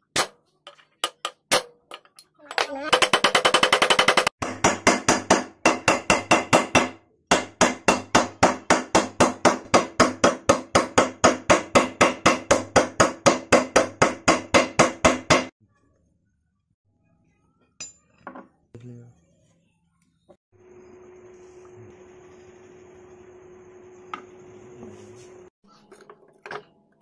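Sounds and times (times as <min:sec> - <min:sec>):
hammer striking metal: 0:03.0 - 0:15.5.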